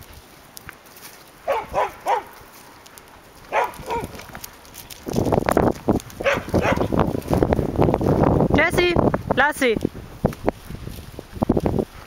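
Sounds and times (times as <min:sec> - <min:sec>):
dog barking: 0:01.4 - 0:02.3, 0:03.5 - 0:04.2, 0:06.2 - 0:07.0.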